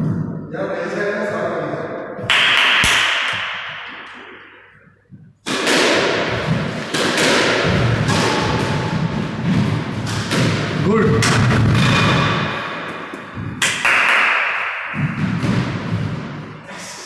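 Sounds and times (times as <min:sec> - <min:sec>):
squash ball cracks: 0:02.3 - 0:04.6, 0:05.4 - 0:15.8.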